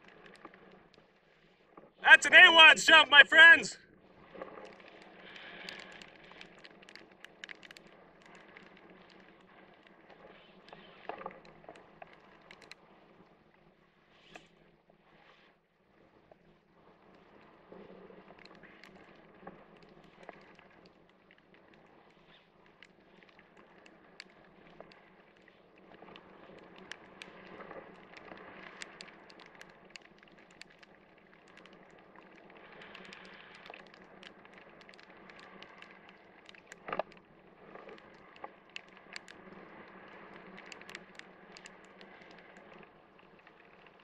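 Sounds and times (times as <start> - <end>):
raindrops ticking on camera: 4.6 - 10.0, 10.7 - 12.8, 18.3 - 44.0.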